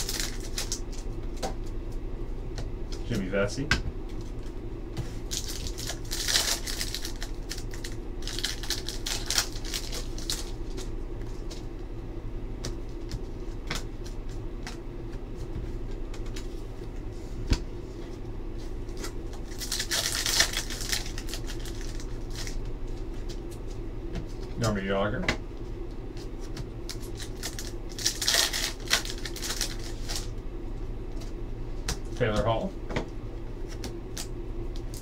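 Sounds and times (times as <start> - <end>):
foil wrappers crinkling and tearing: 0.0 - 1.0, 5.2 - 10.9, 19.0 - 22.7, 26.9 - 30.3
steady low hum: 0.0 - 35.0.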